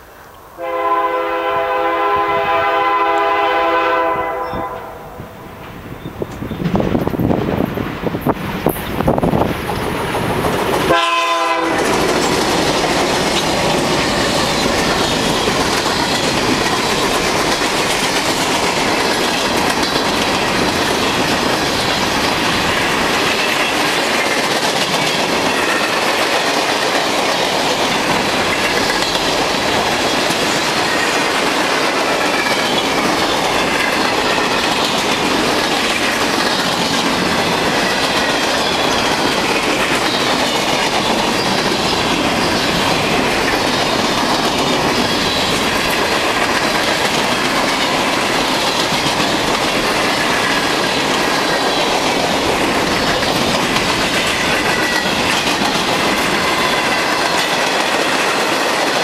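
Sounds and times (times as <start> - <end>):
train horn blast: 0.6 - 5.4, 10.9 - 11.9
train wheels rumbling and clattering: 0.8 - 59.0.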